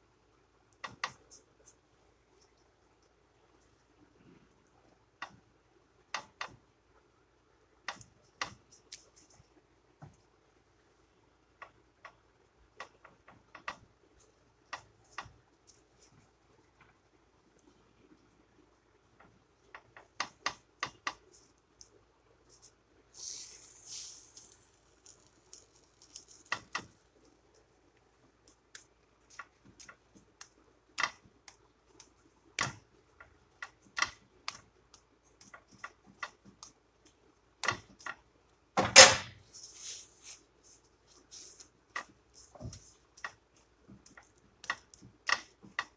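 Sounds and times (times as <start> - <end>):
brief hiss: 23.1 - 24.6.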